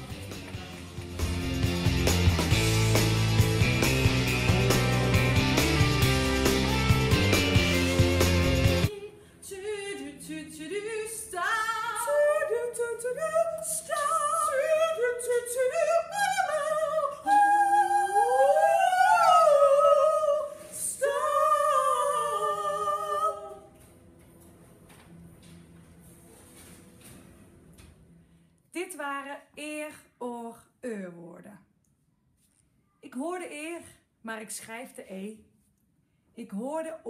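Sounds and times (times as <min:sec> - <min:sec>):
women singing without accompaniment: 0:08.9 - 0:23.7.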